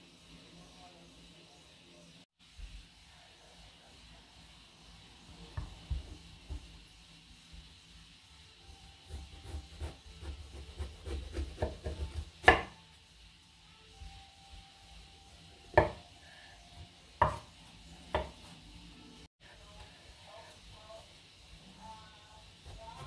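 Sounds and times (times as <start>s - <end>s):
knife slicing eggplant: 9.1s - 12.8s.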